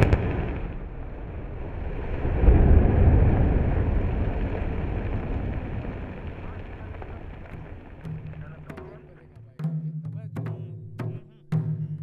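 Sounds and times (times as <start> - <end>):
low rumble of mine blast: 0.0 - 8.4.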